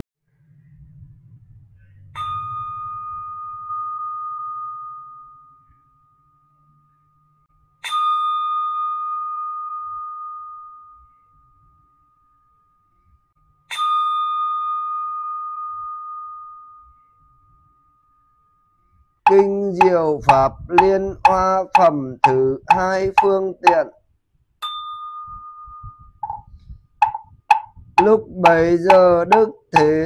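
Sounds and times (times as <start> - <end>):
bowl bell ringing: 2.2 - 19.4, 24.6 - 27.7.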